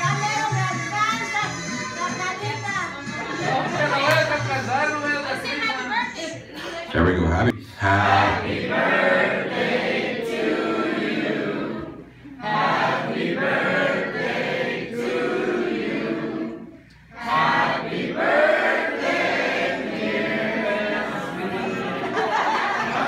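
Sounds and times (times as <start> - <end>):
group of people singing together: 7.6 - 23.0.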